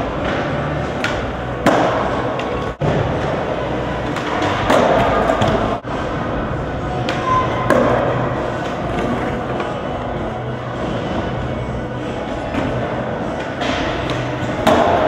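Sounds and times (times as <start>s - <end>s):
echoing hall noise: 0.0s - 15.0s
skateboard wheels rolling: 0.0s - 15.0s.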